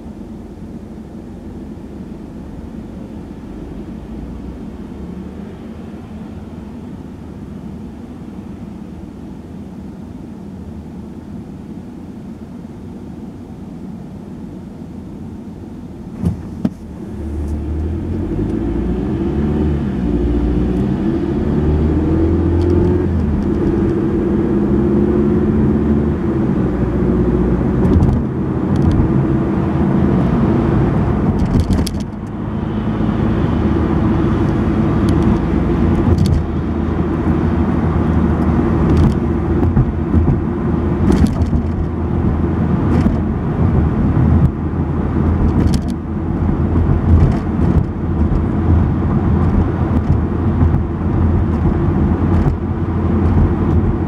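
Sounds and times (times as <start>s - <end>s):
car engine and road noise: 0.0s - 54.0s
knocks from road bumps: 16.2s - 16.8s, 38.8s - 41.9s, 46.8s - 48.5s.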